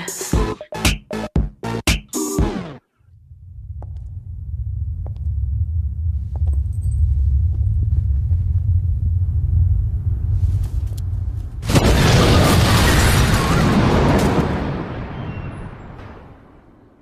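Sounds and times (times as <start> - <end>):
deep bass rumble: 0.4 - 11.8.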